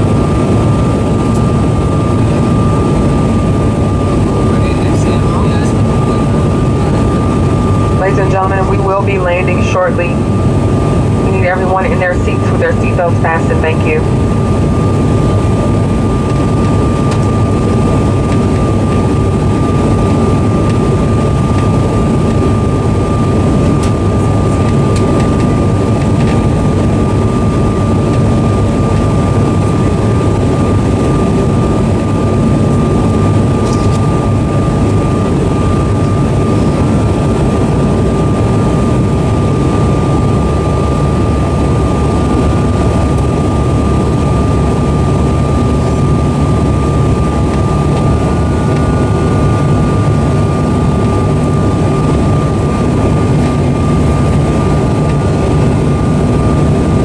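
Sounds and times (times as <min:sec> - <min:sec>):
jet engines and airflow drone: 0:00.0 - 0:57.0
thin steady whine: 0:00.0 - 0:57.0.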